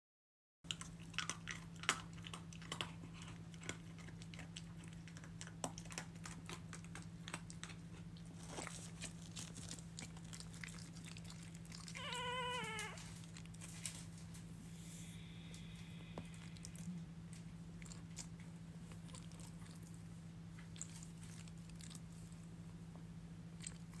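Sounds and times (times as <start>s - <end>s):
steady low hum: 0.7s - 24.0s
animal mewing whine: 11.9s - 13.2s.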